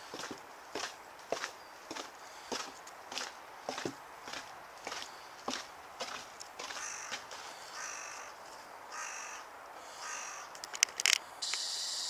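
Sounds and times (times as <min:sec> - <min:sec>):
bird calling: 0:06.7 - 0:12.0
sharp clicks: 0:10.5 - 0:11.7.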